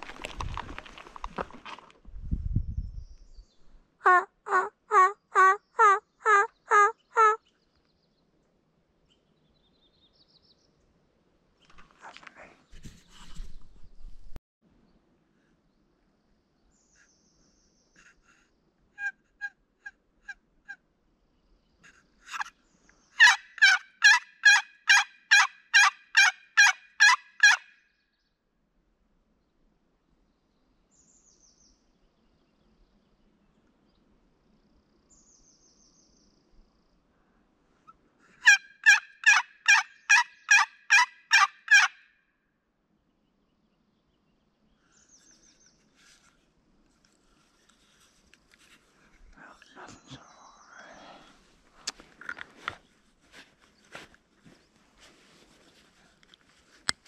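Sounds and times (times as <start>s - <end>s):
turkey yelping: 23.2s - 27.6s, 38.4s - 42.0s.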